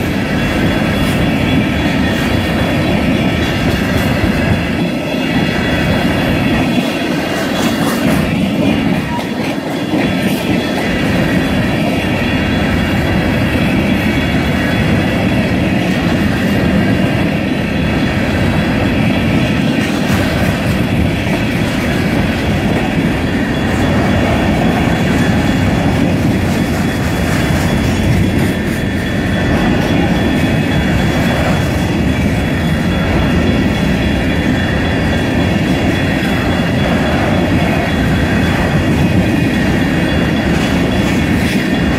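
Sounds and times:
train wheels rumbling on rails: 0.0s - 41.9s.

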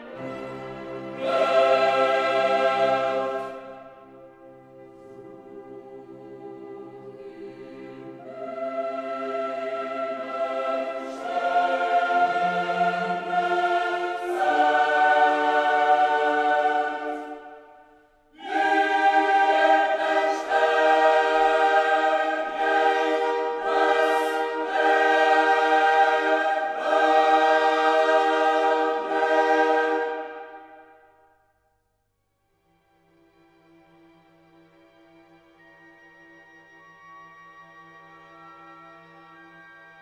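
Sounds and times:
choir singing held chords: 0.0s - 31.4s.

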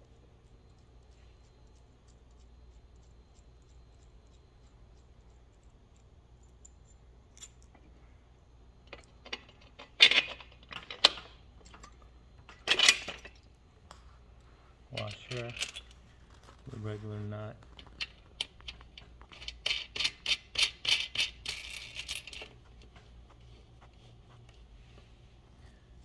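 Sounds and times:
bolt washers and nuts clinking: 5.5s - 7.9s, 8.9s - 13.6s, 14.9s - 16.0s, 17.9s - 22.9s.

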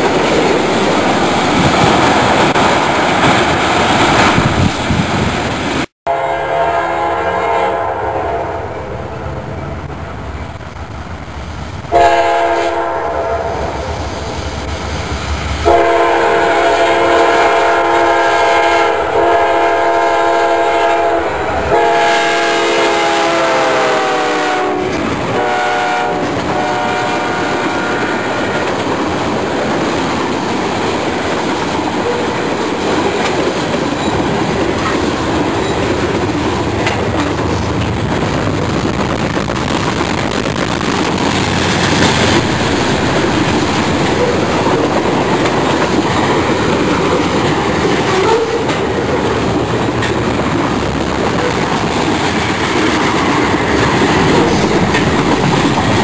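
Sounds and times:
locomotive air horn blasts: 6.0s - 9.2s, 11.9s - 13.9s, 15.6s - 28.6s
train wheels clacking on rails: 23.9s - 56.0s.

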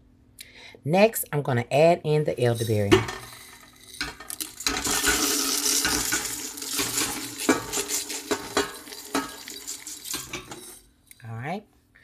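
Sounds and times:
berries rattling into metal pot: 2.4s - 11.0s.

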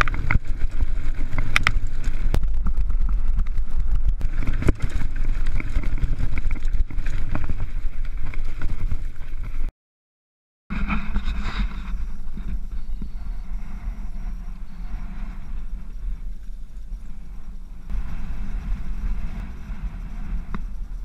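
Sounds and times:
bike rattling over stones: 0.0s - 9.7s
outdoor noise: 0.0s - 9.7s, 10.7s - 21.0s
wind buffeting microphone: 0.0s - 9.7s, 10.7s - 21.0s.

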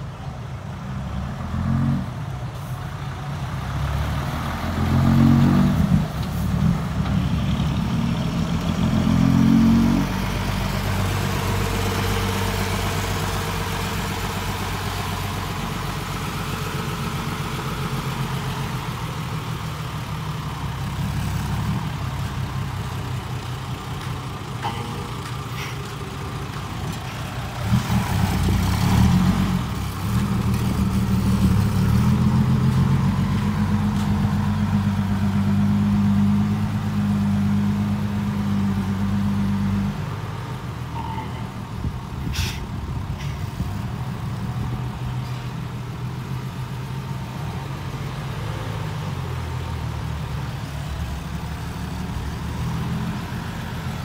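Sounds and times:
short sharp click or hiss: 42.3s - 42.6s.

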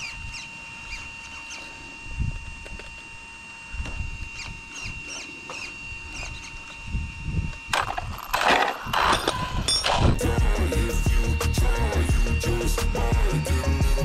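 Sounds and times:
small birds chirping: 0.0s - 1.8s
wind buffeting microphone: 6.8s - 8.2s.

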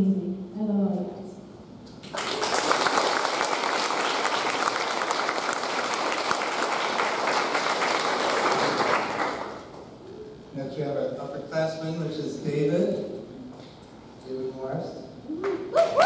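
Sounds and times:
audience applauding: 2.0s - 9.8s.

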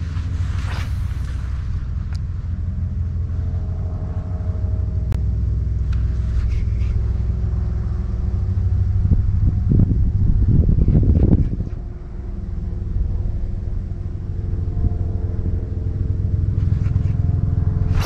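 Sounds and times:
low motor rumble: 0.0s - 18.0s.

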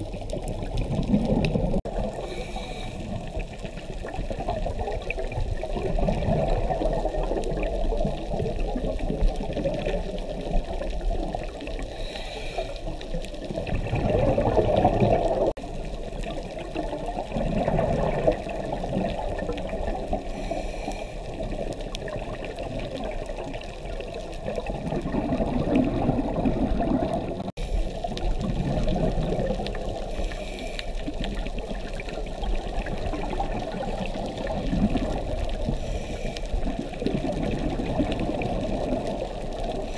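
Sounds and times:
underwater bubbling and gurgling: 0.0s - 39.9s.

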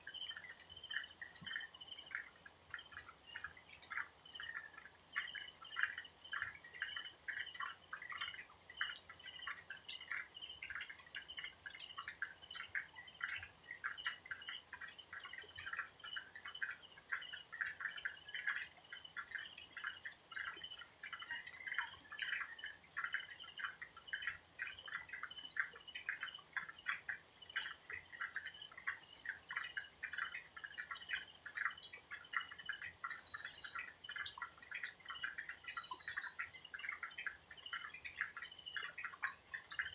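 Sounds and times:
small animals plinking calls: 0.0s - 39.9s.

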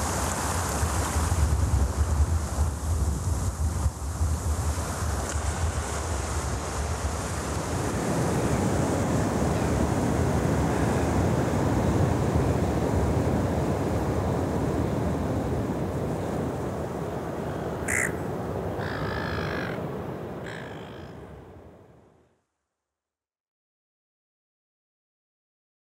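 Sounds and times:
surf rushing: 0.0s - 21.8s
wind rumbling on microphone: 0.0s - 22.0s
gulls calling: 17.0s - 21.5s.

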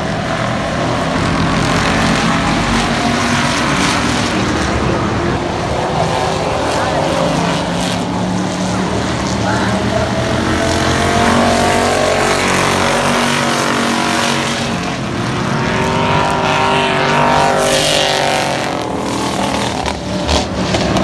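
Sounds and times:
race car engines passing by: 0.0s - 21.0s.

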